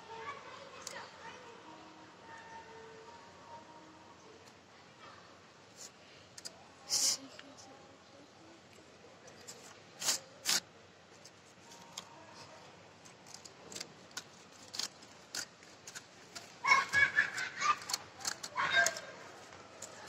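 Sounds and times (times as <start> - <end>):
paper rustling and crackling: 13.1 - 20.0.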